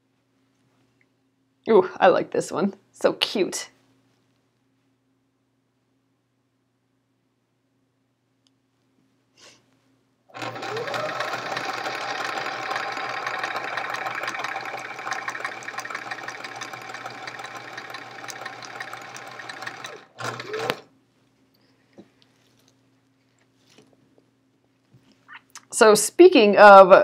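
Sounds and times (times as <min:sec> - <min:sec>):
sewing machine stitching: 0:10.3 - 0:20.9.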